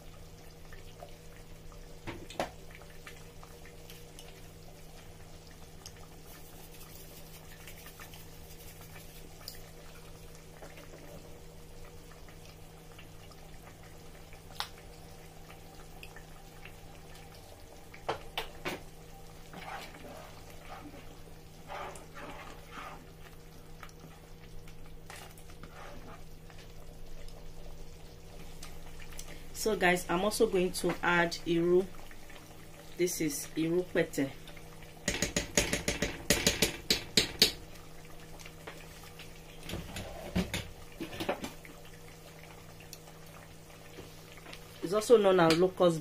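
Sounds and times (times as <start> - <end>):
thick sauce bubbling in a pot: 0.0 - 46.0.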